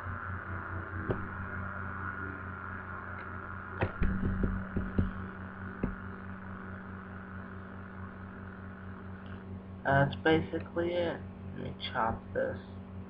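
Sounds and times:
synthesized siren winding down: 0.0 - 9.2
steady hum: 0.0 - 13.0.

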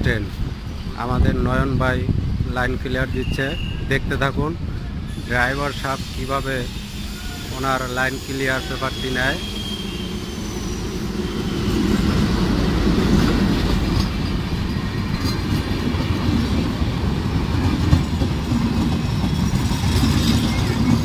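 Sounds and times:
train rumbling on rails: 0.0 - 21.0.

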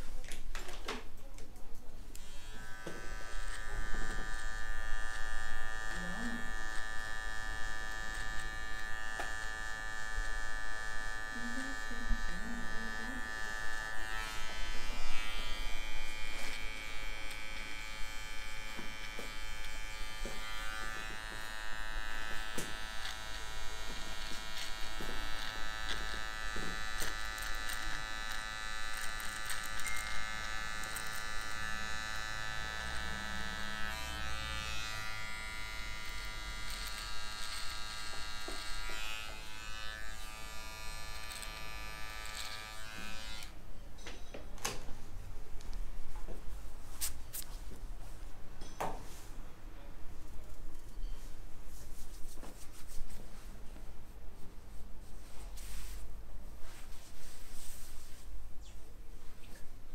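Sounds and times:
electric beard trimmer buzzing: 2.2 - 43.6.

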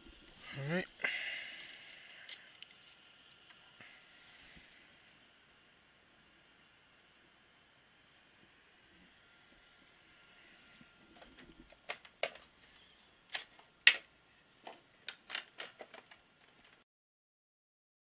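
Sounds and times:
sharp clicks and knocks: 11.2 - 12.5, 13.3 - 16.8.

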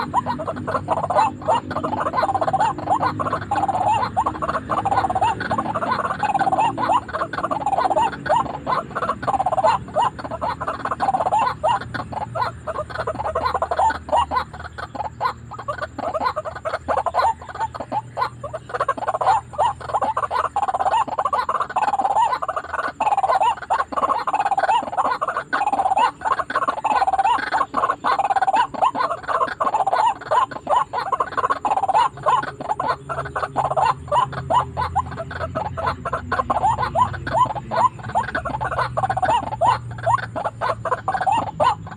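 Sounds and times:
waterhens croaking calls: 0.0 - 41.9.

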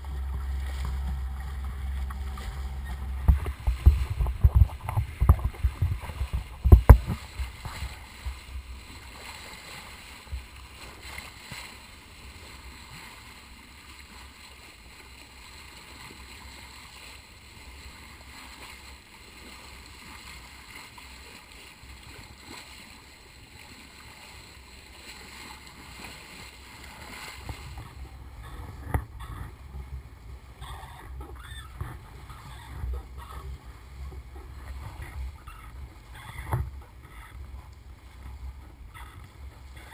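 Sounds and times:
wind buffeting microphone: 0.0 - 8.8
water rushing along boat bow: 0.0 - 39.9.

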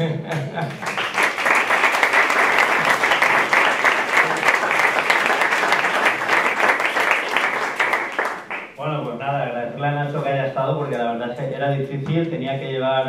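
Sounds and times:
audience applauding: 0.7 - 8.8.

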